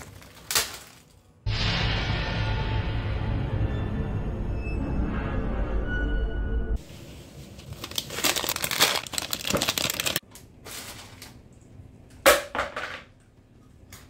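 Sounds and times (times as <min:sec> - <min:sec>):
plastic bags crinkling: 0:00.0 - 0:01.4, 0:07.1 - 0:11.5.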